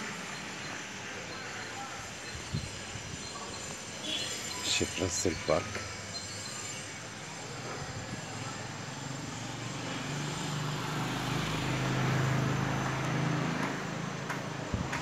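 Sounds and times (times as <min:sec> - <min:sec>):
vehicle passing by: 0:08.4 - 0:14.6.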